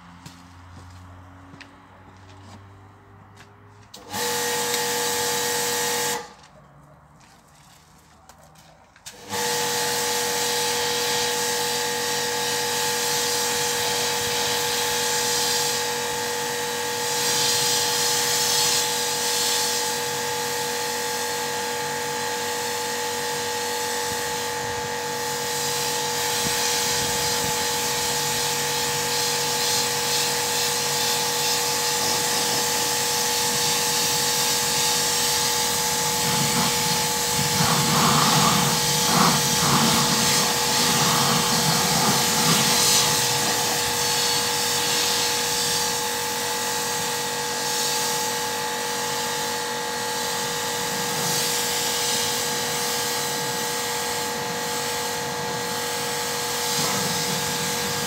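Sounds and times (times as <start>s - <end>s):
pressure washer motor whine: 3.9s - 6.4s, 9.0s - 58.0s
water spraying hiss: 25.4s - 46.0s, 50.3s - 58.0s.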